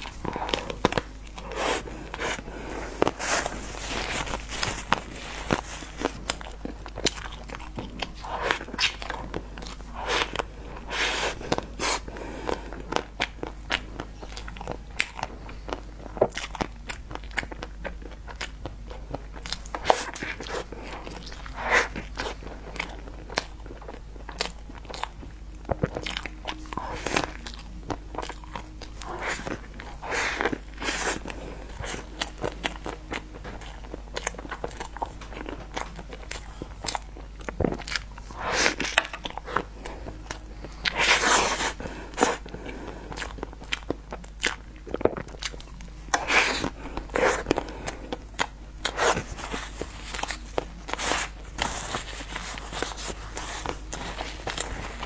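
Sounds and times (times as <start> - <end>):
crunchy bites and chewing: 0.0 - 55.0.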